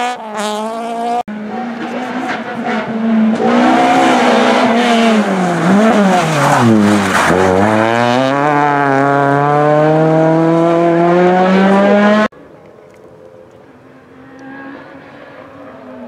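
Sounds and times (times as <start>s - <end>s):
rally car engine revving: 0.0s - 12.3s.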